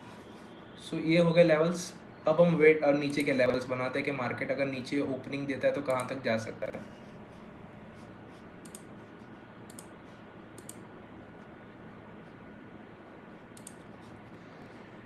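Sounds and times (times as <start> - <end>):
computer mouse clicking: 3.0 - 3.4, 5.8 - 6.2, 8.6 - 10.9, 13.5 - 14.4.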